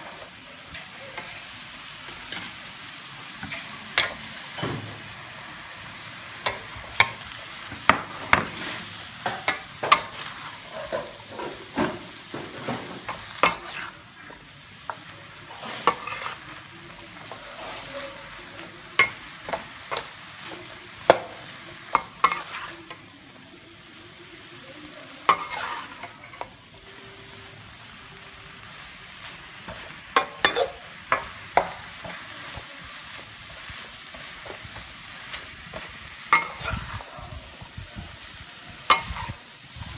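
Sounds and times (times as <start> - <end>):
wok sizzling: 0.0 - 39.9
spatula scraping and knocking on wok: 25.3 - 26.5.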